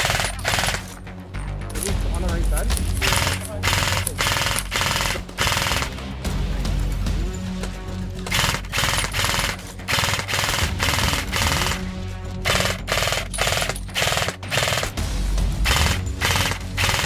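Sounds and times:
airsoft gun bursts: 0.0s - 1.0s, 3.0s - 6.0s, 8.3s - 11.9s, 12.5s - 15.0s, 15.7s - 17.0s
music track: 0.0s - 17.0s.

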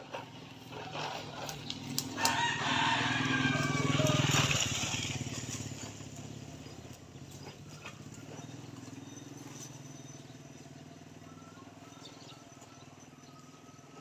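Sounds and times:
rooster crowing: 2.0s - 5.0s.

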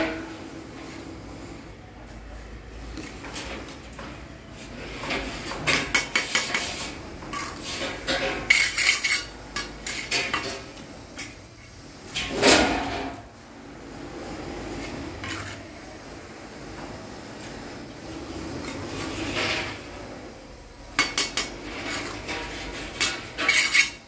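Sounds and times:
trowel scraping and clinking: 5.0s - 11.4s, 14.8s - 15.7s, 21.0s - 24.0s.

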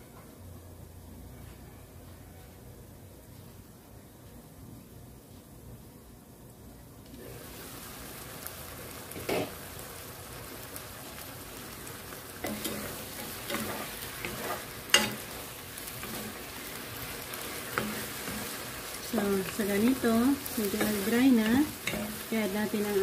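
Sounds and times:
noodles and pork sizzling in pan: 6.4s - 23.0s
wooden spatula scraping pan: 12.4s - 16.6s.

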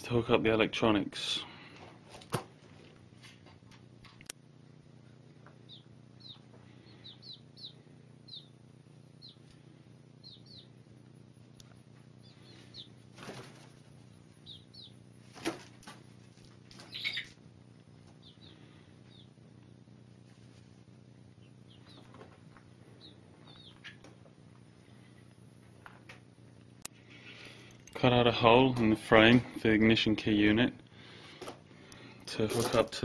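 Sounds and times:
chicks peeping: 5.6s - 9.6s, 10.2s - 10.8s, 11.7s - 16.0s, 16.7s - 17.4s, 18.0s - 19.4s, 21.4s - 24.2s
chickens rustling: 12.0s - 19.4s, 20.0s - 26.2s.

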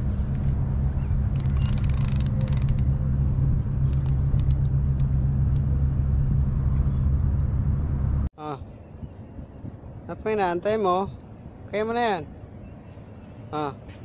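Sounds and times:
low machinery rumble: 0.0s - 10.1s.

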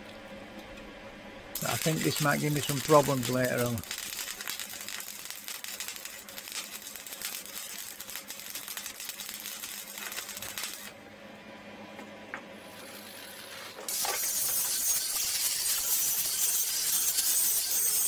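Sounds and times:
arc welding crackling: 1.5s - 11.0s, 12.6s - 18.0s
steady hiss: 1.6s - 10.9s.

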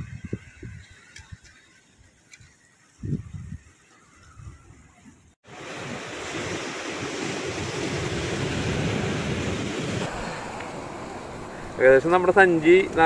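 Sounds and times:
wind rushing on microphone: 0.0s - 13.0s
surf at rock breakwater: 4.8s - 13.0s.

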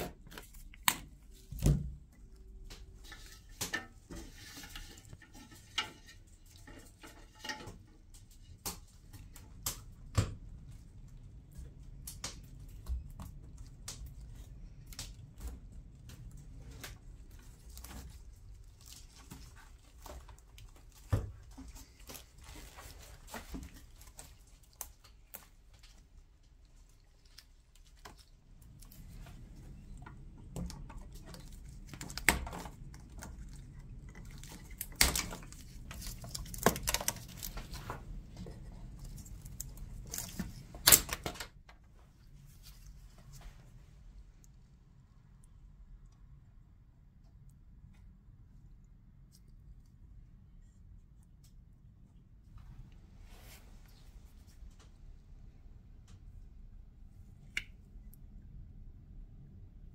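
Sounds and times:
wicker rods rustling and crackling: 0.0s - 44.4s.

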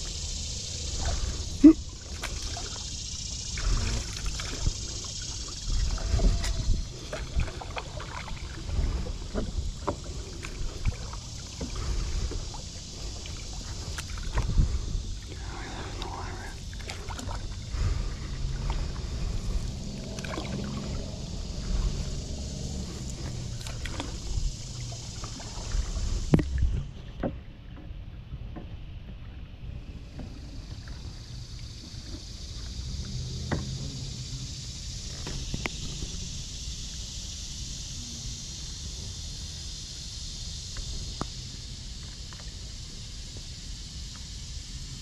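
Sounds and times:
wind rumble on microphone: 0.0s - 45.0s
paddle splashing in water: 0.9s - 27.9s.

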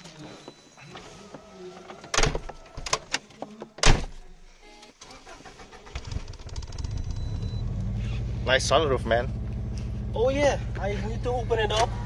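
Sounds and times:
car engine starting and running: 5.0s - 12.0s.

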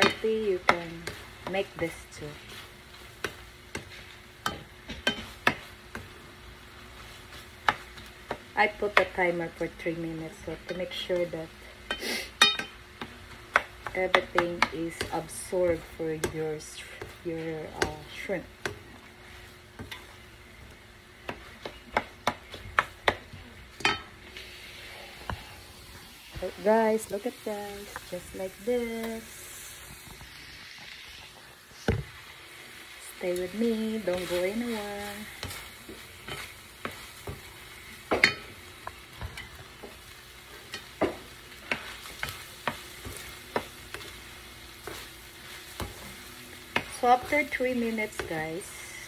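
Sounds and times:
faint sizzle: 0.0s - 49.0s
spatula scraping a skillet: 33.4s - 38.5s.

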